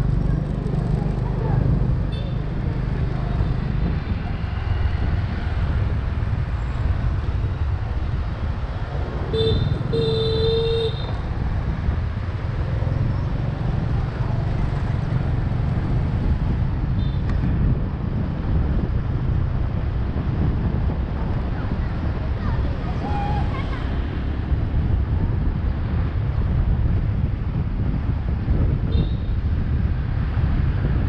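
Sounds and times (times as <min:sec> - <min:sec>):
street traffic rumble: 0:00.0 - 0:31.0
wind: 0:00.0 - 0:31.0
vehicle horn honking: 0:09.3 - 0:11.2.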